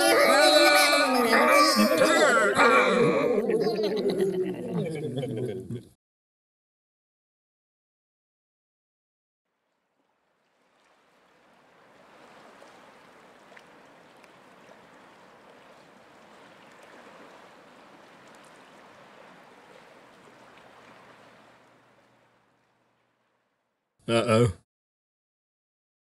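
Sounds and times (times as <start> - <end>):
faint running water: 9.5 - 23.9.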